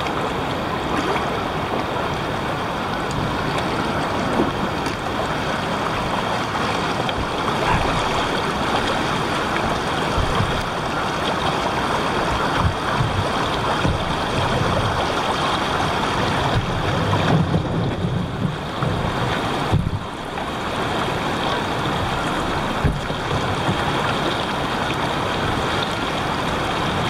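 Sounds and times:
river water rushing over rocks: 0:00.0 - 0:27.0
feet splashing through water: 0:03.0 - 0:17.3.

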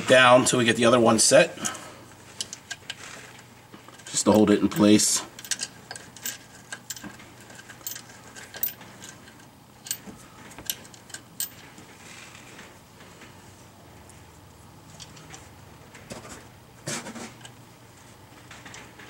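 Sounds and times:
metallic clicks of bolts and tools: 0:03.9 - 0:11.7.

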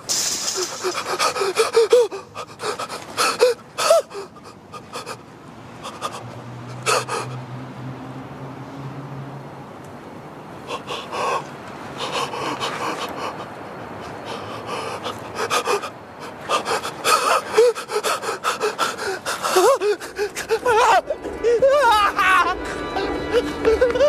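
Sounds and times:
person breathing hard and gasping: 0:00.1 - 0:05.2, 0:10.7 - 0:21.7.

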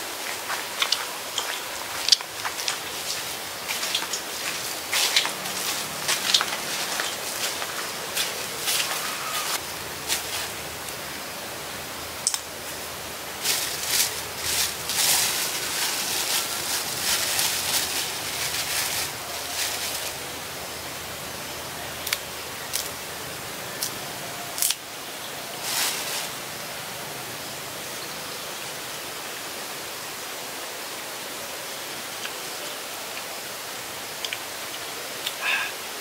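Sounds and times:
steady hiss: 0:00.0 - 0:36.0
plastic bag crinkling: 0:13.4 - 0:20.2.

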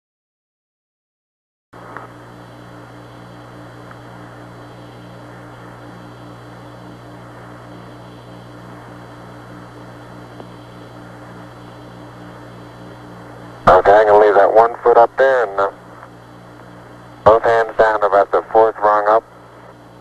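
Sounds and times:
small radio clicks: 0:01.8 - 0:02.2, 0:03.8 - 0:04.1, 0:10.3 - 0:10.6, 0:16.0 - 0:16.2
faint pulsing tones: 0:01.8 - 0:20.0
radio hiss and hum: 0:01.8 - 0:20.0.

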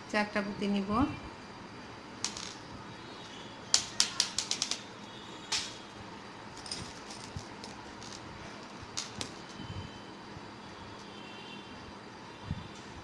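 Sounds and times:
beads clicking against glass bowl: 0:03.7 - 0:05.8.

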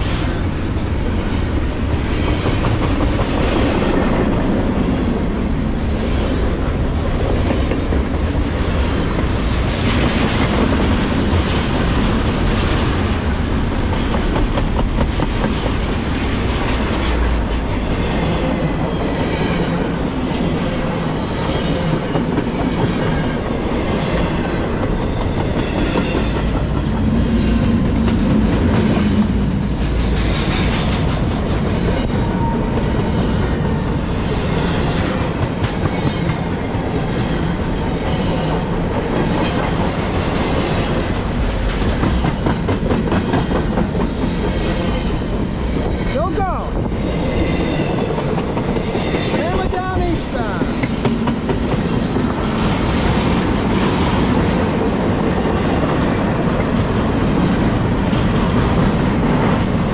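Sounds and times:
freight train wheels rumbling: 0:00.0 - 0:59.9
wheels clickety-clack: 0:01.3 - 0:05.0, 0:05.8 - 0:19.9, 0:21.4 - 0:59.9
high squeals: 0:08.8 - 0:10.4, 0:44.5 - 0:45.5.

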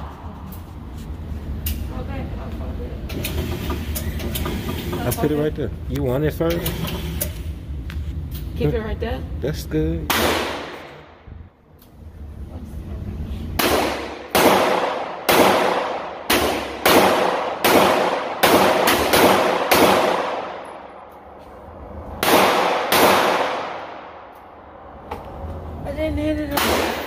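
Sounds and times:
gunshots with echo: 0:10.1 - 0:11.0, 0:13.6 - 0:20.9, 0:22.2 - 0:24.2.

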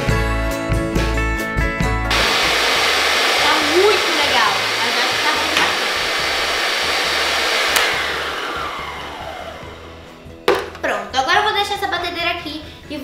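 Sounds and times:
stand mixer motor whine: 0:02.1 - 0:10.2
mixer switch click: 0:07.7 - 0:08.0.

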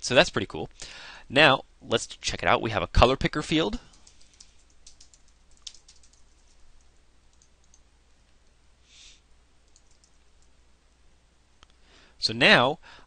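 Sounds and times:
computer keyboard keystrokes: 0:03.9 - 0:07.8, 0:09.7 - 0:10.5.

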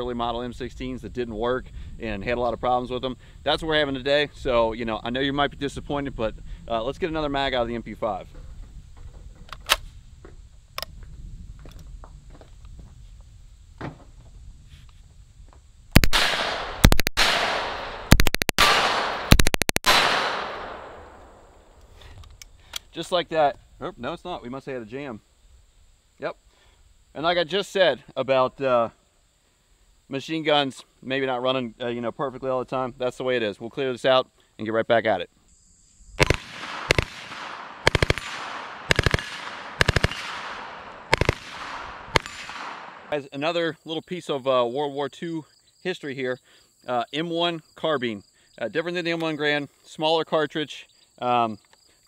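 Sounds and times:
submachine gun bursts with echo: 0:16.0 - 0:21.0, 0:36.2 - 0:43.1.

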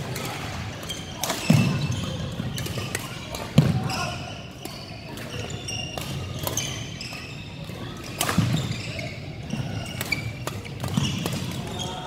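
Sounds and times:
shoe squeaks on court floor: 0:00.7 - 0:12.0
badminton racket hits: 0:09.7 - 0:11.8.

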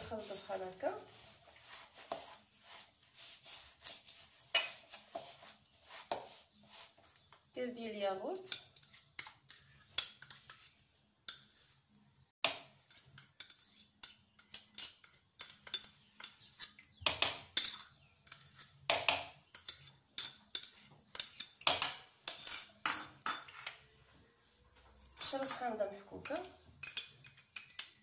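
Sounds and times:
metal spoon scraping ceramic bowl: 0:04.5 - 0:05.0, 0:08.4 - 0:11.8, 0:12.8 - 0:16.9, 0:17.5 - 0:23.8, 0:26.2 - 0:28.0.

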